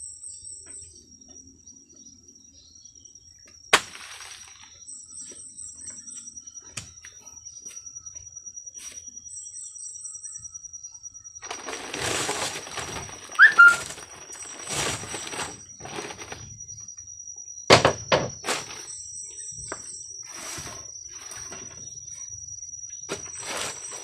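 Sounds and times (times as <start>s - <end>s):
high insect whine: 0.0s - 24.0s
machete chopping bamboo: 3.8s - 4.2s
rustling and scraping: 11.4s - 16.8s, 17.7s - 22.3s, 23.0s - 24.0s.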